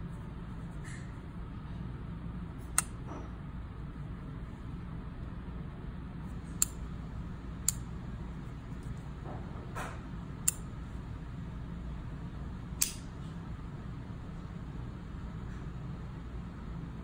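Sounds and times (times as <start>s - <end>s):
steady low hum: 0.0s - 17.0s
revolver hammer clicks: 10.4s - 10.6s, 12.8s - 13.1s.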